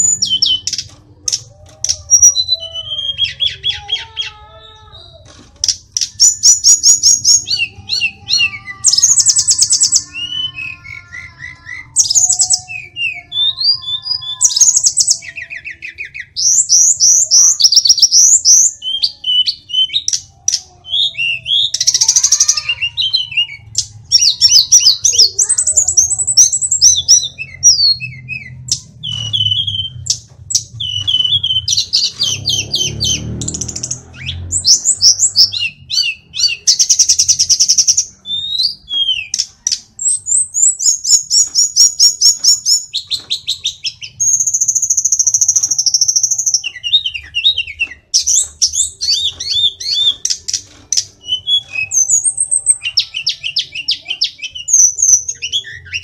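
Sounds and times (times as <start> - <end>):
bird singing varied song: 0.0 - 56.0.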